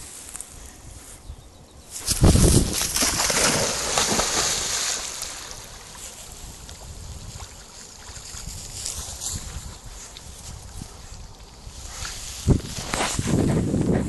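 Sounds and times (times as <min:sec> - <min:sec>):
dog splashing in water: 0:02.1 - 0:06.0.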